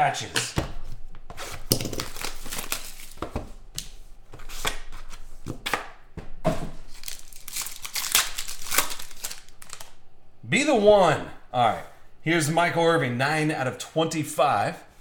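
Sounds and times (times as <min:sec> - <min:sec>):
plastic wrapping crinkling and tearing: 0:01.4 - 0:03.3, 0:06.9 - 0:10.0.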